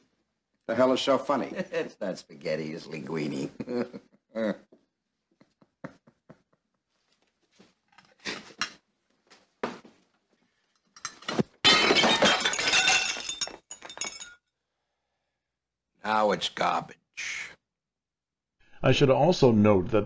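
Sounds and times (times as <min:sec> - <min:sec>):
broken pieces clattering: 0:11.0 - 0:14.4
plate shattering: 0:11.0 - 0:14.4.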